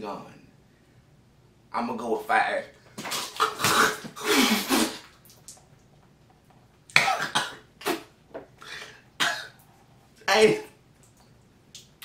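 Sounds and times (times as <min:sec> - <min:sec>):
man coughing and sputtering: 0:03.1 - 0:05.1, 0:06.9 - 0:08.1, 0:09.2 - 0:09.6.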